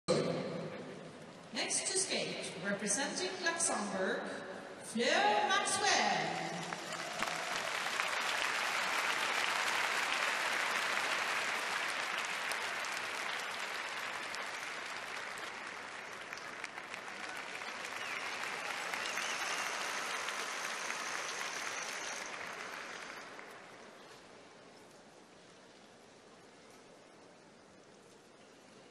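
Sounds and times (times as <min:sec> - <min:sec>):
large crowd applauding: 0:06.4 - 0:24.1.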